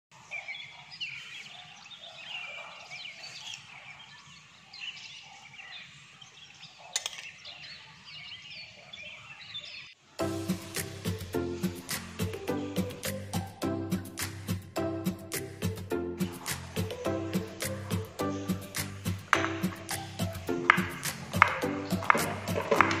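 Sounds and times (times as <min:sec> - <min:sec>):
small birds chirping: 0:00.1 - 0:23.0
music: 0:10.0 - 0:23.0.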